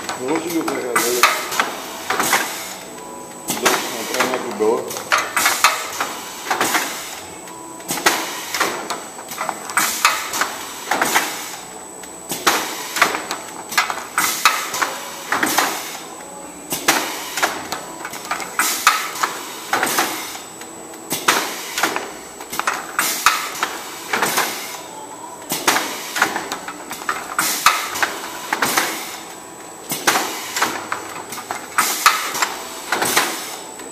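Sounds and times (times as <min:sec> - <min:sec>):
faint high whine: 0:07.1 - 0:10.8.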